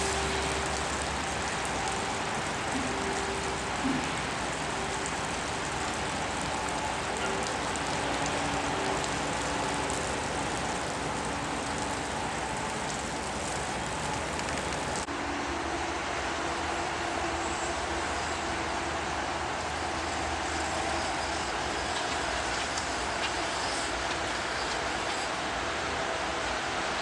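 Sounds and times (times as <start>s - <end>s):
electric arc welding crackling: 0.0s - 15.1s.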